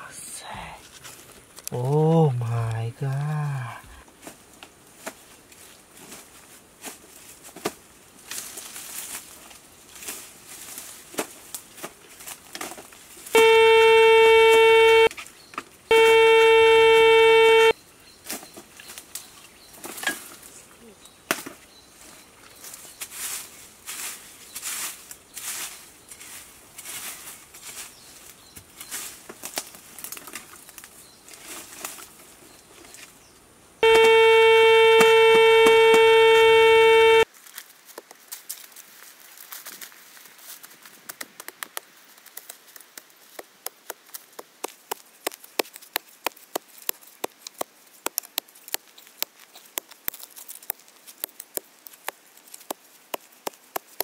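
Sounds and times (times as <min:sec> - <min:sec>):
leaf litter crackling underfoot: 0:03.1 - 0:13.4, 0:18.2 - 0:33.3, 0:37.2 - 0:54.0
metal detector buzzing tone: 0:13.4 - 0:15.1, 0:15.9 - 0:17.7, 0:33.8 - 0:37.2.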